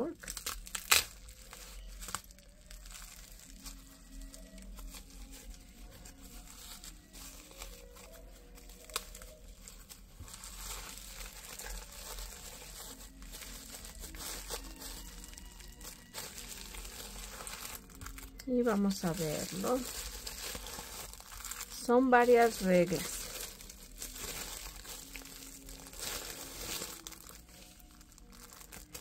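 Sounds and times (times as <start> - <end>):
bubble wrap crinkling: 0.0 - 29.0.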